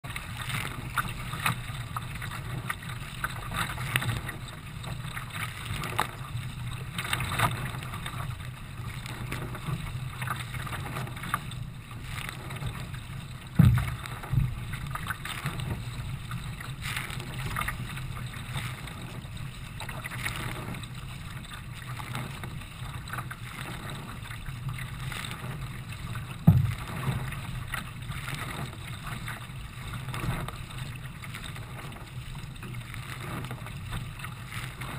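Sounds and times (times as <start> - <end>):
constant low rumble: 0.0 - 34.9
water splashing at kayak bow: 0.0 - 34.9
sharp loud low thumps: 13.6 - 14.5.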